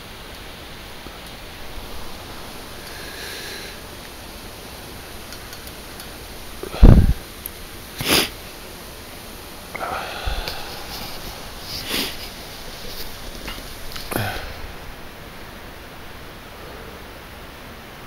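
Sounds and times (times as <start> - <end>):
short sniffs: 8.0 - 8.4, 9.8 - 14.7.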